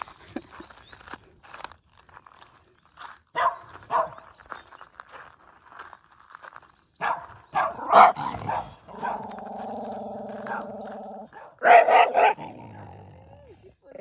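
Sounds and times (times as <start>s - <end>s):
dogs barking: 3.4s - 4.3s, 7.0s - 12.9s
dog growling: 7.7s - 14.0s.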